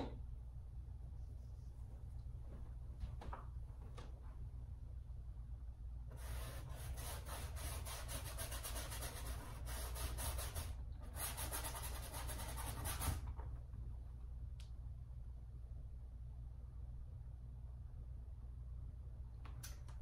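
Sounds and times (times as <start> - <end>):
paintbrush scrubbing on canvas: 6.2 - 13.1.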